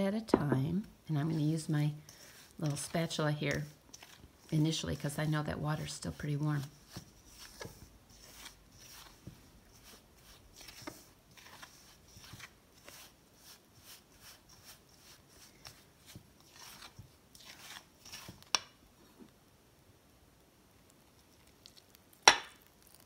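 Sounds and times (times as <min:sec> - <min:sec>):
spatula scraping dough in bowl: 0:01.2 - 0:18.6.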